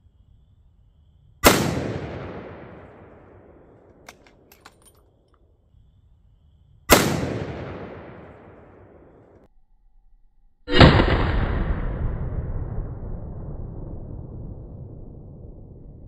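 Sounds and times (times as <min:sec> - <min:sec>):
rifle shots with echo: 0:01.4 - 0:04.8, 0:06.9 - 0:09.4.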